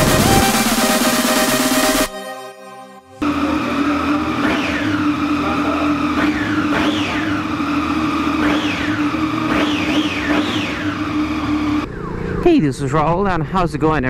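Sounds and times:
motorcycle engine idling and revving: 3.2 - 12.4.

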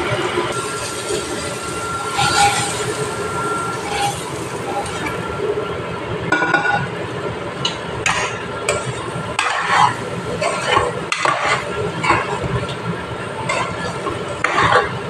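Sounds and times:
frying sizzle: 0.0 - 5.9, 8.0 - 15.0
spoon scraping a steel pan: 2.1 - 5.2, 8.7 - 12.4.

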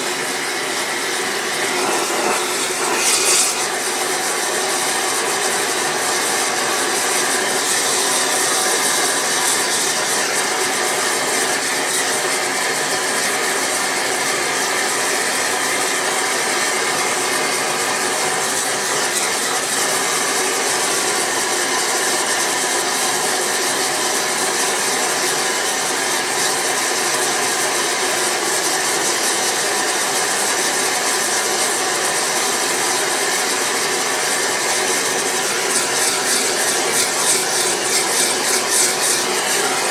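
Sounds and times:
gas torch flame rushing: 0.0 - 12.1.

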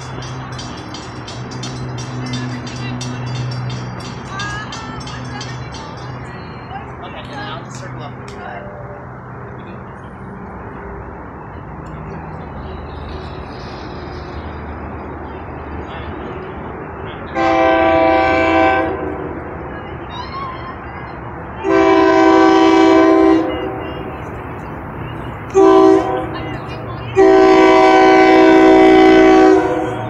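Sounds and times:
low train rumble: 0.0 - 30.0
train horn chime blasts: 17.3 - 19.4, 21.6 - 24.0, 25.5 - 26.5, 27.1 - 30.0.

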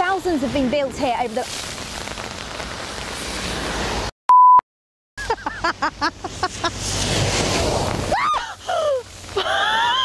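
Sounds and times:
censor bleep: 4.3 - 4.6
woman screaming: 8.1 - 10.0
woman shrieking: 8.1 - 10.0.

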